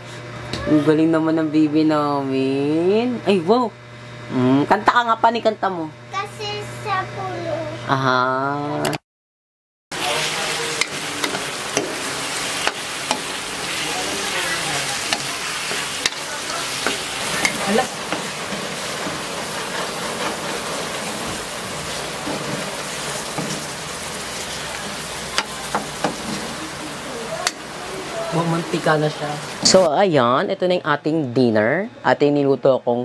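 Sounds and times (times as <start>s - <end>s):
pork sizzling in a wok: 9.9s - 29.9s
metal ladle scraping a pan: 10.2s - 26.6s.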